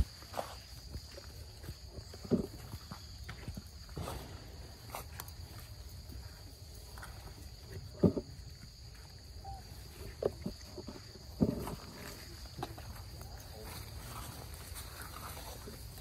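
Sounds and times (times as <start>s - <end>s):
high insect drone: 0.0s - 16.0s
rustles on dry leaves: 11.5s - 16.0s.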